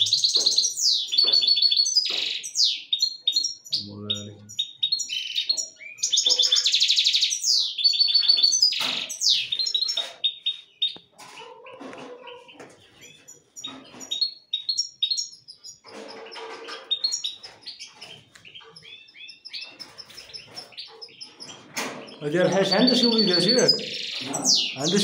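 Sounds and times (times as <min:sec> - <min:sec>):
finches singing and chirping: 0:00.0 - 0:11.0, 0:12.9 - 0:25.0.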